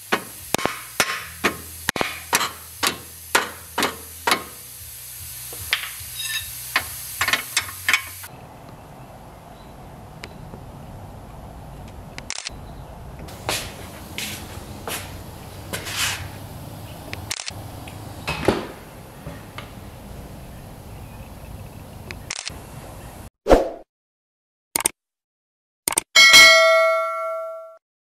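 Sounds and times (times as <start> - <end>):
faint hiss: 0.1 - 8.3
low steady hum: 7.9 - 23.2.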